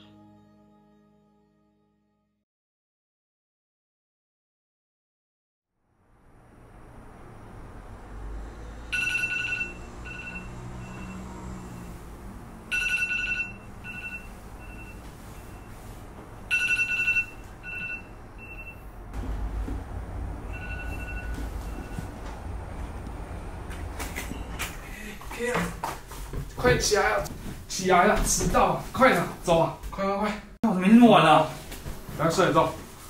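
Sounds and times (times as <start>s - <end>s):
two-tone phone alarm beep: 8.9s - 11.3s, 12.7s - 15.8s, 16.5s - 18.9s, 20.5s - 22.1s.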